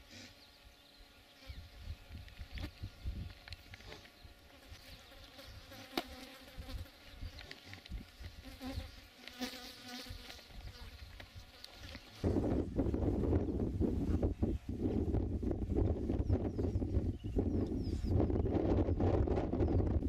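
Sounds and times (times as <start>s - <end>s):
insects buzzing: 0.0s - 14.8s
wind rumbling on microphone: 1.5s - 4.4s, 10.5s - 20.0s.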